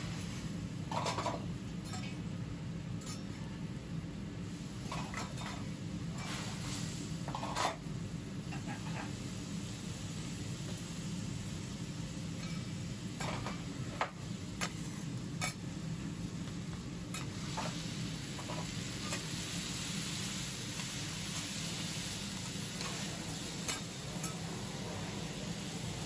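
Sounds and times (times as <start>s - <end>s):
food sizzling on a griddle: 0.0s - 2.2s, 4.4s - 26.0s
metal spatulas tapping and scraping: 3.0s - 3.3s, 8.5s - 9.1s.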